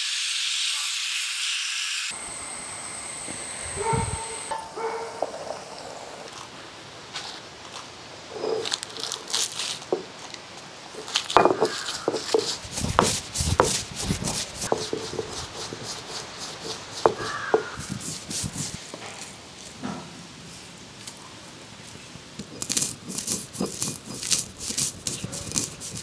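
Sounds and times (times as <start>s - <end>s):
dry chillies crackling and crunching: 7.1s - 19.8s, 20.5s - 26.0s
stone scraping on stone: 8.3s - 10.1s, 10.9s - 19.3s, 22.4s - 26.0s.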